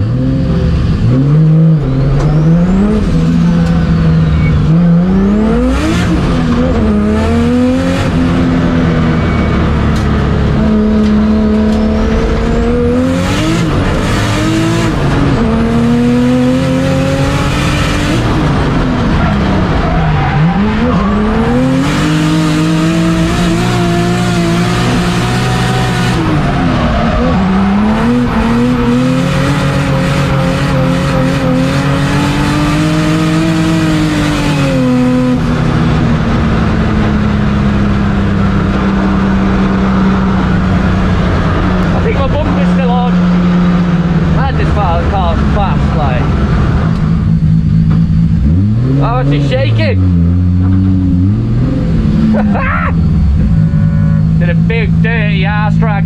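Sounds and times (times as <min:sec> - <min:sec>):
car engine revving: 0:00.0 - 0:56.0
tyre squeal: 0:01.8 - 0:04.8, 0:08.9 - 0:09.9, 0:19.1 - 0:22.0, 0:52.3 - 0:54.6.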